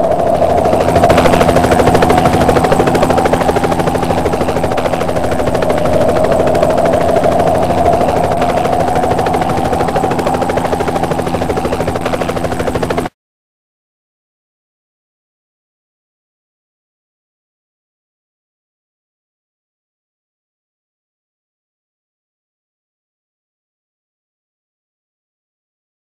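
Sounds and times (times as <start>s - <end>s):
turbine whine: 0.0s - 13.1s
helicopter rotor chopping: 0.0s - 13.2s.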